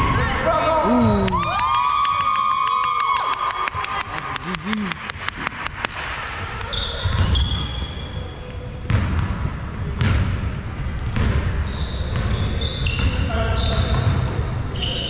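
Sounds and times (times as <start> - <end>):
high shoe squeaks: 6.2 - 8.3, 11.6 - 15.0
basketball bouncing on gym floor: 8.8 - 14.3.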